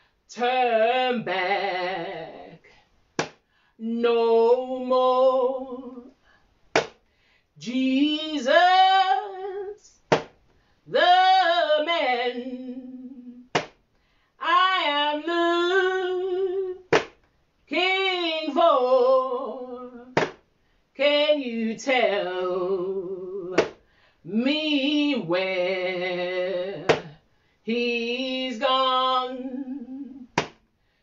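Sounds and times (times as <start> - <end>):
woman singing a cappella: 0.0 - 2.8, 3.7 - 6.4, 7.6 - 10.1, 10.7 - 13.6, 14.4 - 17.0, 17.6 - 30.4.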